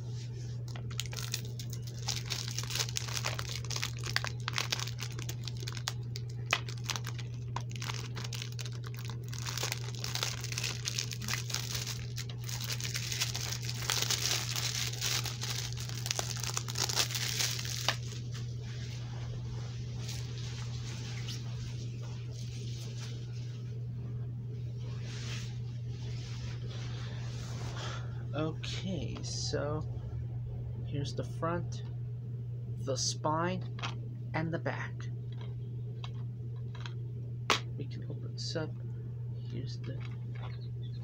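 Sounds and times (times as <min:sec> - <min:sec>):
plastic wrap crinkling and tearing: 0:00.7 - 0:18.2.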